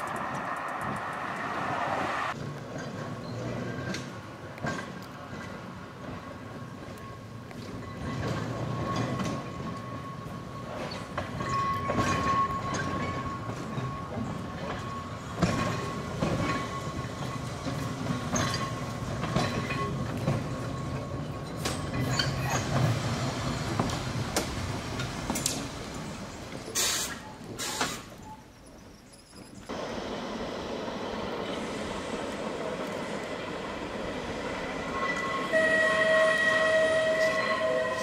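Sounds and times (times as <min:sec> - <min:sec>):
tram running rumble: 0:00.0 - 0:38.0
wheels clicking over rail joints: 0:02.3 - 0:29.9
short bursts of hiss: 0:26.8 - 0:28.1.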